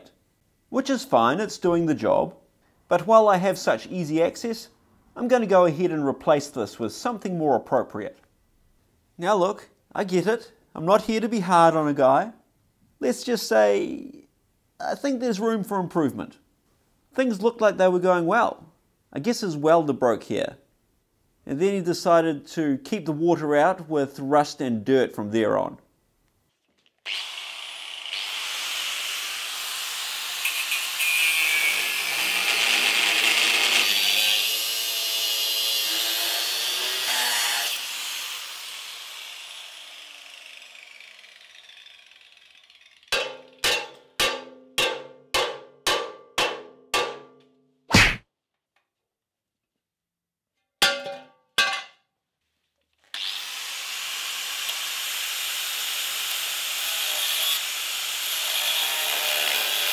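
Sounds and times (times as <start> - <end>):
angle grinder cutting steel: 27.1 - 43.6, 53.1 - 59.9
sharp ringing metal knocks: 43.1 - 47.5.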